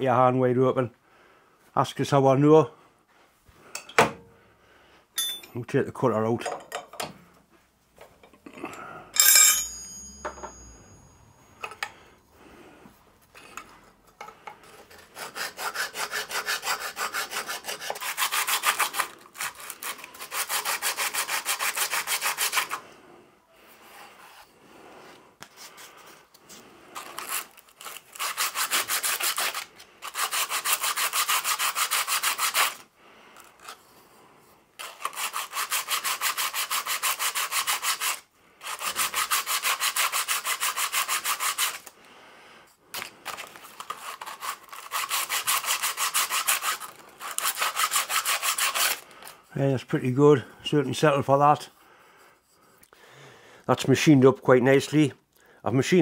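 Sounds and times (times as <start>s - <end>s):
filing and sanding metal: 14.6s - 22.8s, 27.0s - 32.8s, 34.8s - 41.9s, 43.3s - 49.1s.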